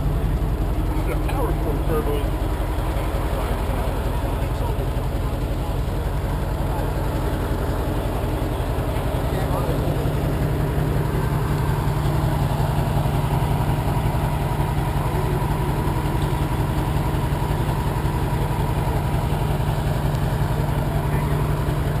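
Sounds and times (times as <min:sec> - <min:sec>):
diesel truck engine idling: 0:00.0 - 0:22.0.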